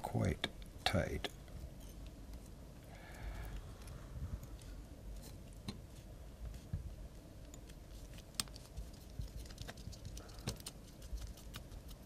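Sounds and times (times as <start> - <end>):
thread clicking and rustling: 7.4 - 12.0.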